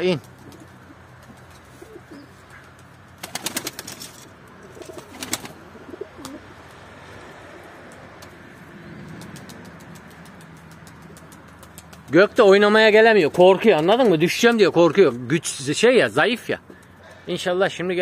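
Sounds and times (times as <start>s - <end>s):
pigeons cooing: 0.2s - 3.9s, 4.6s - 6.6s.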